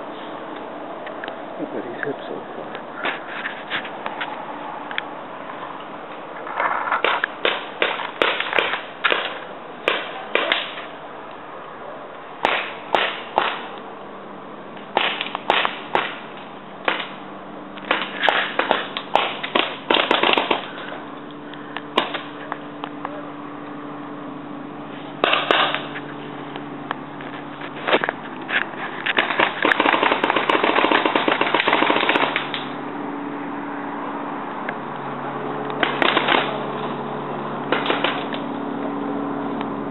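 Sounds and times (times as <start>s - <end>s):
paintball markers firing: 7.0s - 10.9s, 12.4s - 13.8s, 15.0s - 16.2s, 16.9s - 17.2s, 17.8s - 20.8s, 25.2s - 25.9s, 29.1s - 32.8s, 35.8s - 36.6s, 37.7s - 38.4s.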